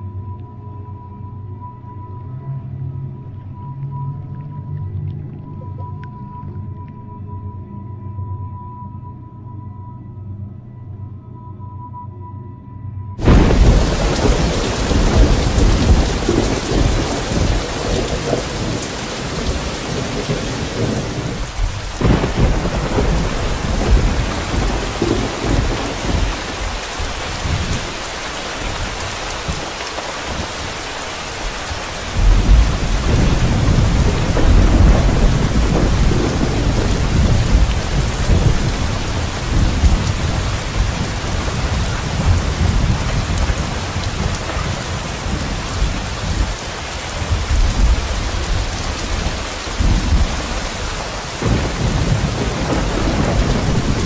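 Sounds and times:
continuous rushing noise: 13.2 - 54.0.

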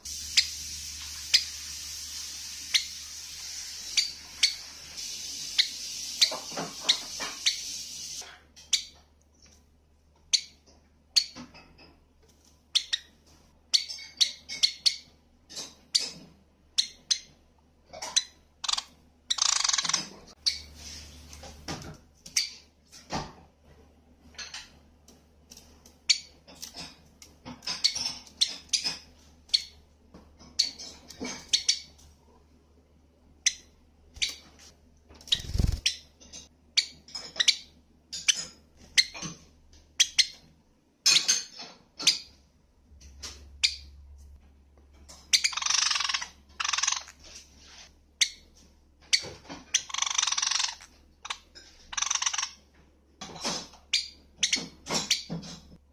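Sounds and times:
sparrow chirping: 18.1 - 20.7, 35.3 - 36.1, 45.3 - 47.1.

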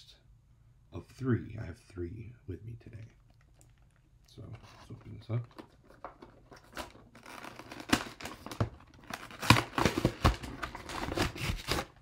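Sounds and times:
packaging tearing and crinkling: 5.5 - 12.0.

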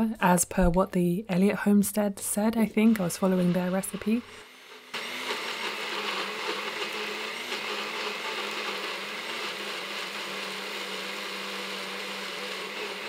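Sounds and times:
blender motor whirring: 2.8 - 13.0.

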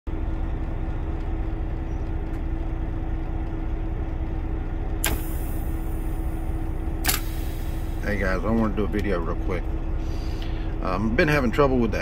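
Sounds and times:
diesel truck engine idling: 0.1 - 12.0
solenoid clack: 5.0 - 5.6, 7.0 - 7.6.

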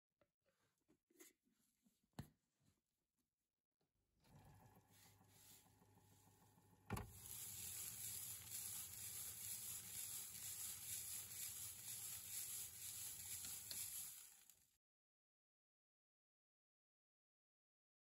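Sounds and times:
rotary tumbler load rattling: 7.0 - 14.6.

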